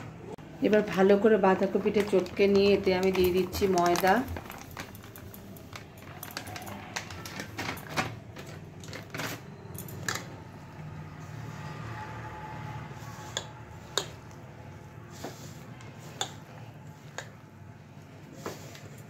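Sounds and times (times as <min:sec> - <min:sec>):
hand mixing flour and cabbage: 0:00.6 - 0:07.6, 0:10.7 - 0:19.0
plastic bag crinkling: 0:01.6 - 0:10.2.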